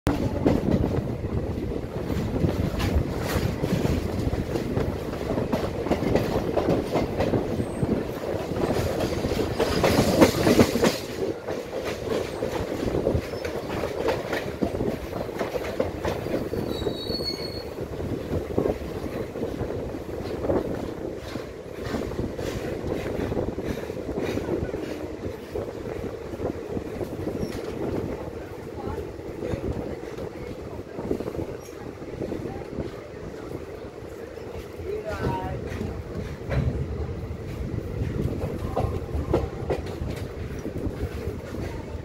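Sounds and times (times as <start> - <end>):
train wheels clattering over joints: 0.1 - 42.0
high wheel squeal: 16.4 - 17.8.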